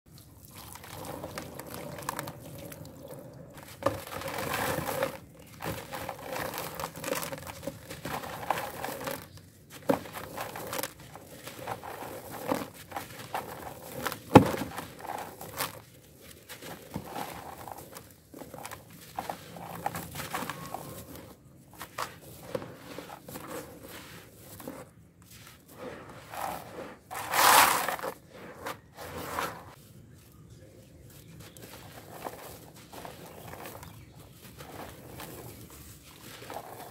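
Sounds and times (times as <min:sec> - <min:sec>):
mud paste pouring: 0:00.1 - 0:24.8
wet dirt crunching by hand: 0:00.1 - 0:36.9.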